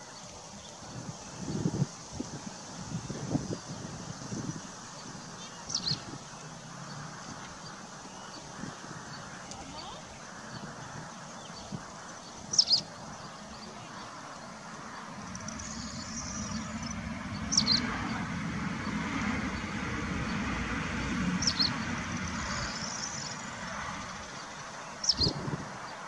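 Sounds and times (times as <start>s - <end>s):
low rumble: 15.1s - 24.2s.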